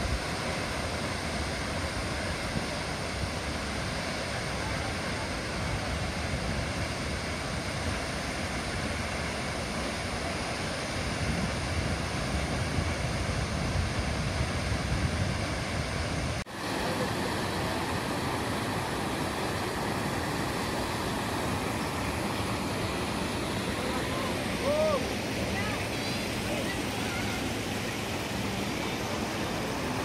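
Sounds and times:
water rushing over rocks: 16.5 - 30.0
waterfall rushing: 16.5 - 30.0.

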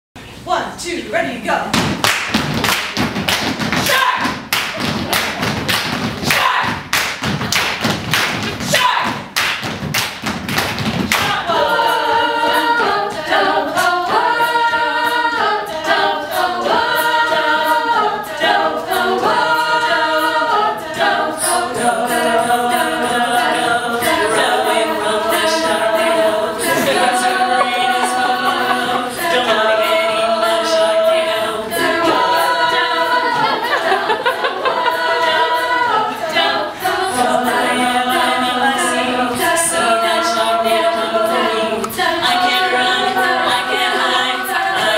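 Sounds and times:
vocal percussive hits: 1.7 - 44.9
female voices singing in harmony: 11.1 - 44.9.

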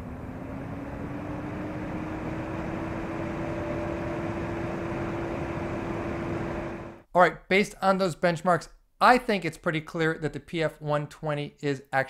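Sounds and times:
cooling fan ramping up: 0.0 - 7.0.

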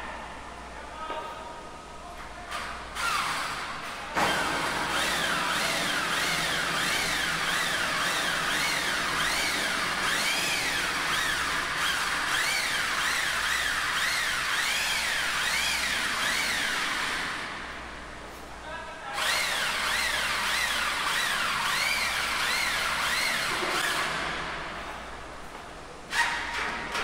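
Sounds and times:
electric drill whining: 4.2 - 17.4.

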